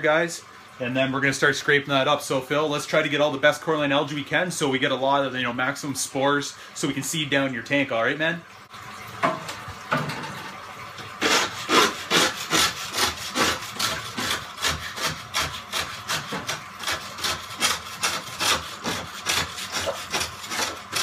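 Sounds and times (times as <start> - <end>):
scraper rasping on aquarium glass: 11.2 - 21.0.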